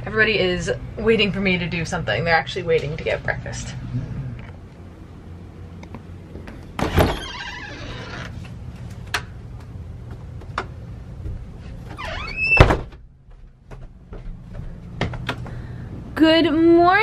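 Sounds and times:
steady low hum: 0.0 - 17.0
door hinge squeak: 6.9 - 8.3, 12.0 - 12.8
door thump: 12.6 - 13.0.

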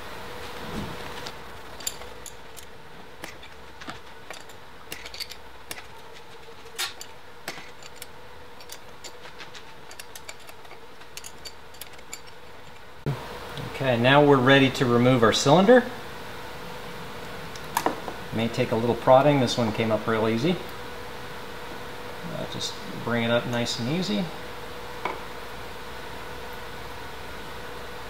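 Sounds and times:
faint steady hum: 0.0 - 28.0
metallic clicks of tools and parts: 1.2 - 6.0, 6.6 - 12.9.

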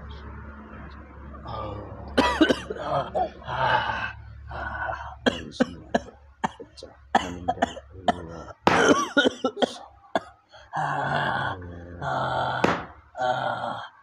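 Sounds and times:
man coughing: 1.5 - 4.0, 4.8 - 10.3.

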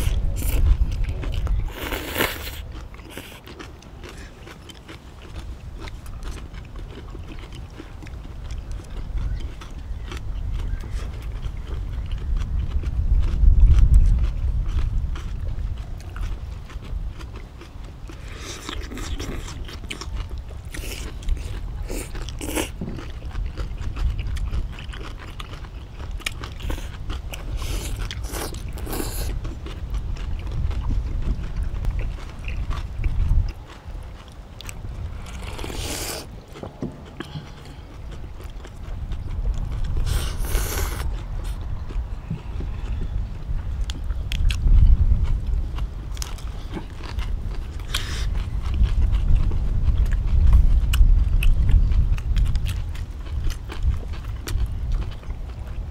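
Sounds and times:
chewing and crunching: 0.0 - 55.9
steady low rumble: 0.0 - 55.9
noodle slurping: 35.2 - 36.4, 40.0 - 41.6.

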